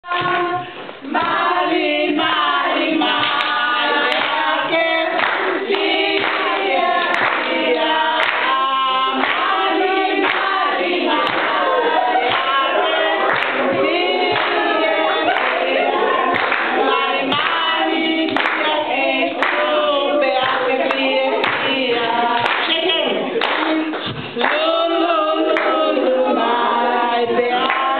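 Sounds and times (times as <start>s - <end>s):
women singing in parts: 0.0s - 27.9s
hand clapping: 3.1s - 4.4s, 5.2s - 7.6s, 8.2s - 8.6s, 9.2s - 9.6s, 10.2s - 11.6s, 12.2s - 12.6s, 13.2s - 14.7s, 16.3s - 17.7s, 18.3s - 18.8s, 19.4s - 19.7s, 20.4s - 24.7s, 27.6s - 27.9s.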